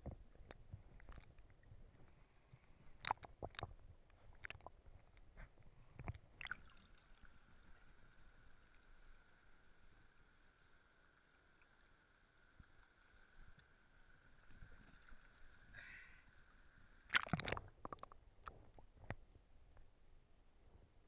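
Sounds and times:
water sloshing: 0:06.0 - 0:07.2, 0:17.1 - 0:18.1.

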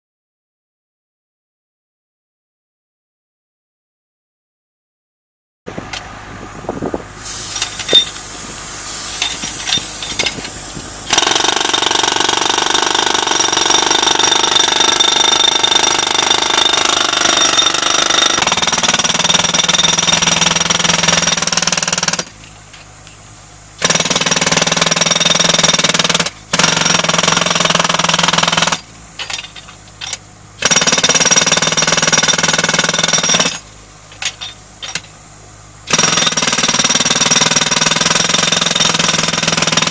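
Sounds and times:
jackhammer breaking concrete: 0:11.1 - 0:22.4, 0:23.8 - 0:29.5, 0:30.6 - 0:33.7, 0:35.9 - 0:39.9.

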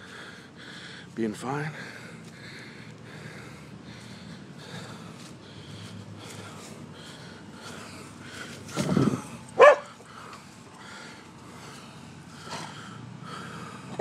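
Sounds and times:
dogs barking: 0:09.5 - 0:10.1
low rough bark: 0:09.6 - 0:10.0.

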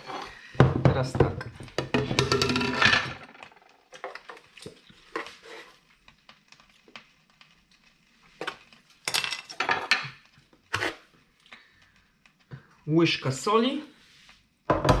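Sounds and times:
cutlery and kitchenware clinking: 0:01.8 - 0:04.3, 0:09.1 - 0:11.0.

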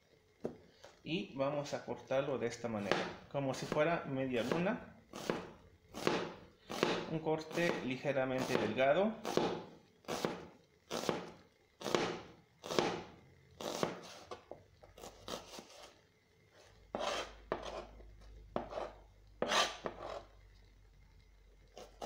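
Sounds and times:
knife slicing onion on board: 0:02.8 - 0:03.8, 0:04.4 - 0:16.0, 0:16.9 - 0:20.3, 0:21.8 - 0:22.0.

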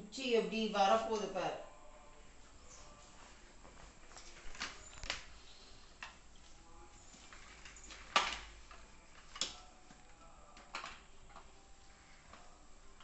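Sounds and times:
plastic clicks and knocks: 0:07.5 - 0:11.5.

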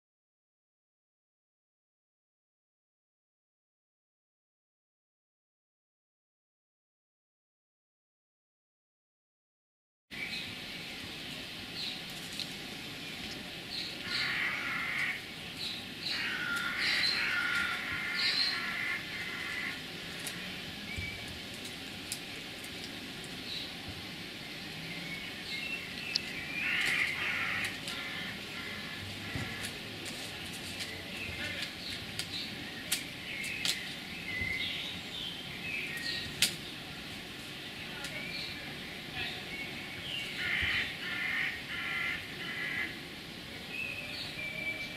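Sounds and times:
birds chirping: 0:10.1 - 0:44.9
outdoor background: 0:10.1 - 0:44.9
long bird calls: 0:11.8 - 0:37.0, 0:37.7 - 0:43.1.

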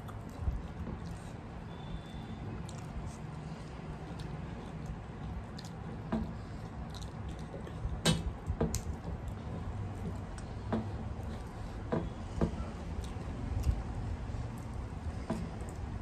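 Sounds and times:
chewing: 0:00.0 - 0:11.8, 0:12.8 - 0:16.0
sharp clicks and smacks: 0:04.0 - 0:16.0.

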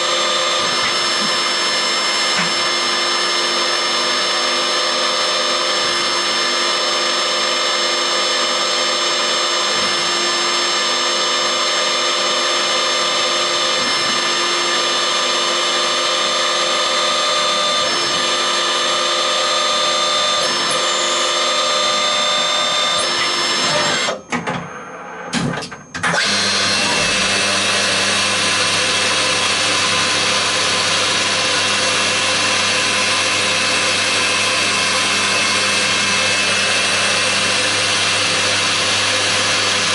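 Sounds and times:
milling tool deep hum: 0:26.1 - 0:39.9.

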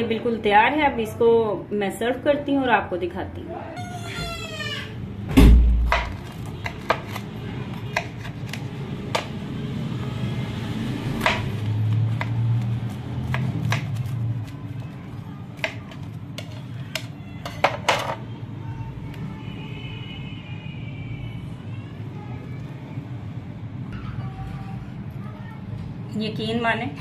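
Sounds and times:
knife cutting crisp flatbread: 0:05.8 - 0:09.4, 0:11.0 - 0:17.8.

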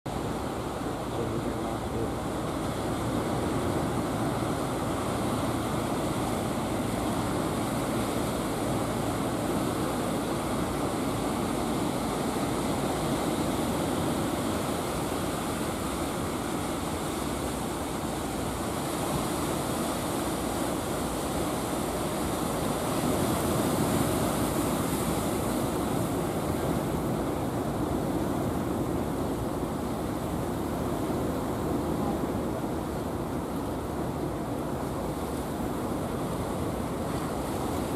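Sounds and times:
ocean surf breaking on beach: 0:00.1 - 0:37.9.

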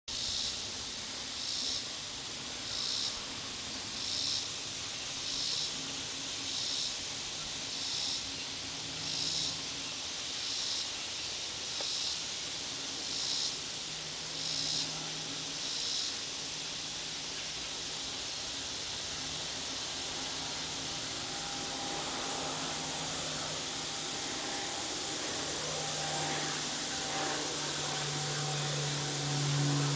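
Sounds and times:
insects buzzing in pulses: 0:00.1 - 0:29.9
faint low hum: 0:13.9 - 0:29.9.

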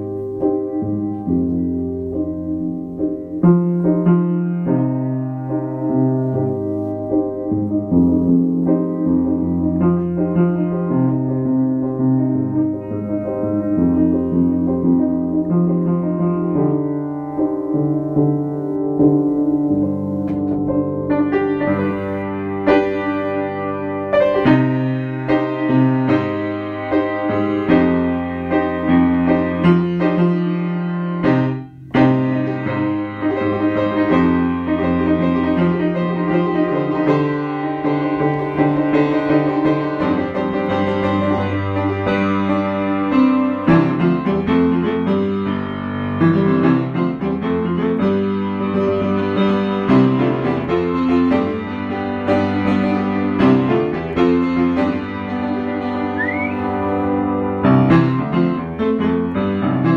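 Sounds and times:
piano music: 0:00.0 - 0:59.9.

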